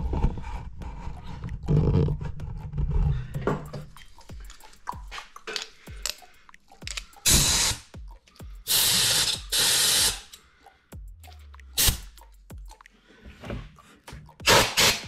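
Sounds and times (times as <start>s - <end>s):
handling clicks and knocks: 6.8s - 7.1s
compressed air blow gun hissing: 7.3s - 7.9s.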